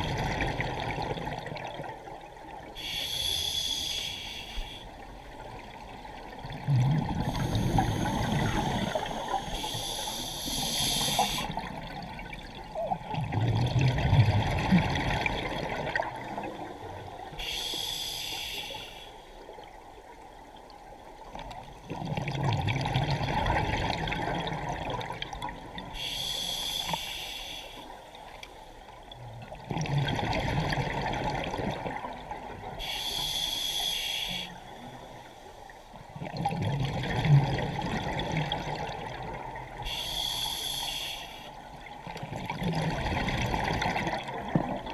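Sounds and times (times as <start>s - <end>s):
exhaled air bubbling underwater: 0.0s - 44.9s
regulator hissing inhale: 2.8s - 4.9s, 7.2s - 11.6s, 17.4s - 19.4s, 25.9s - 28.7s, 32.8s - 35.7s, 39.8s - 41.7s.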